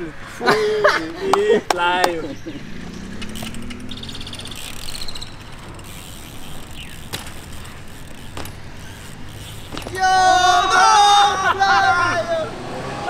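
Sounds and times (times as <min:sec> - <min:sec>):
sharp clicks: 0:02.8 - 0:10.0
bike hub ratcheting: 0:02.8 - 0:10.7.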